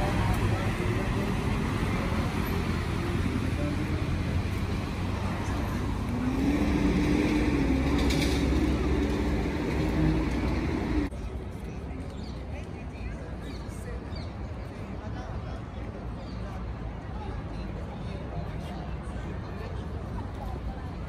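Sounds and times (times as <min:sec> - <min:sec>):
passing cars rumbling: 0:00.0 - 0:11.2
vehicle engine hum: 0:00.0 - 0:13.4.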